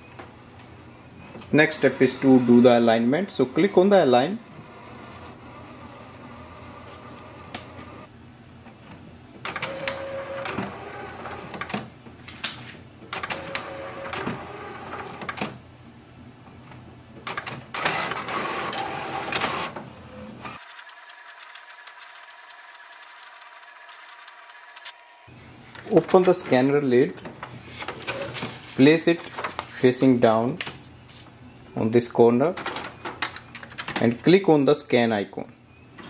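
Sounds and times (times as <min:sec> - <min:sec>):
printer mechanism running: 0:09.4 - 0:11.9, 0:13.1 - 0:15.6, 0:17.2 - 0:26.5
printer fast ticking: 0:20.6 - 0:25.0.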